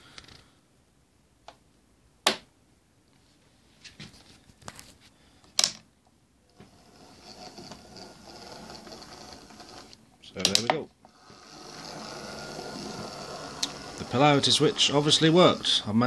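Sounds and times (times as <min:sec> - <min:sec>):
small electric motor whirring: 0:06.6 - 0:10.0, 0:11.0 - 0:16.0.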